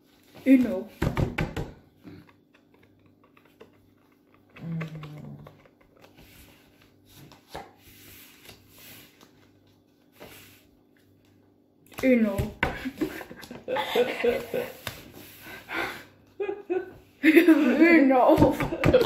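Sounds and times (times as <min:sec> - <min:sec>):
playing cards clicking and rustling: 0:02.2 - 0:10.4
person humming: 0:04.6 - 0:05.5.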